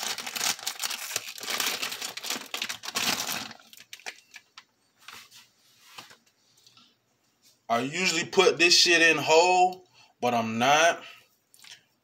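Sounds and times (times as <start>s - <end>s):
plastic bag crinkling: 0.0s - 5.2s.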